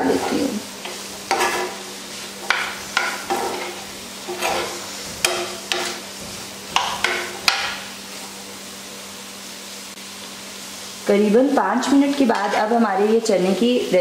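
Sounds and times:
metal spoon scraping a frying pan: 0.0s - 7.9s
faint sizzle: 0.0s - 14.0s.

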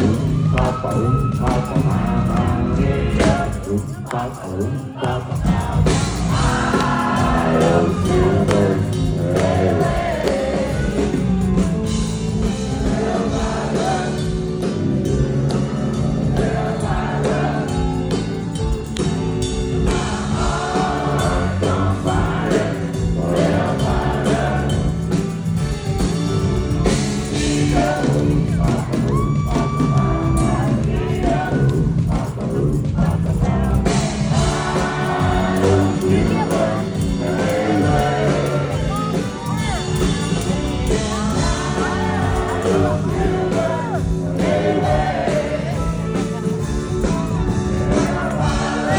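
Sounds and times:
vocal group singing in harmony: 0.0s - 18.6s, 19.4s - 25.6s, 26.8s - 48.9s
live country band: 0.0s - 48.9s.

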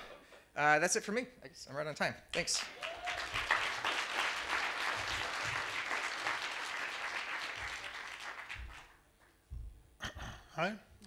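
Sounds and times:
audience applauding: 2.4s - 9.0s.

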